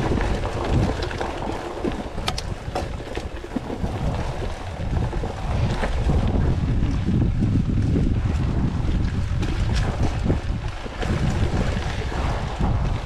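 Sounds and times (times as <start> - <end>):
wind buffeting microphone: 0.0 - 13.0
bike clicks and rattles: 0.4 - 5.0.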